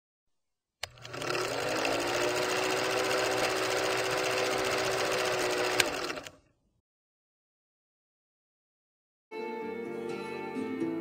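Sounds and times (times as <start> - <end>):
film projector clatter: 0.8 - 6.4.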